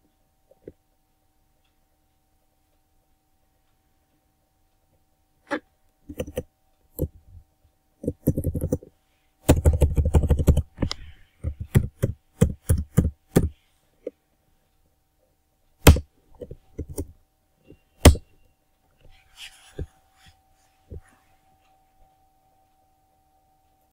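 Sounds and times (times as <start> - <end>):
computer keyboard typing: 6.1 - 7.2, 8.0 - 13.6, 15.8 - 17.2.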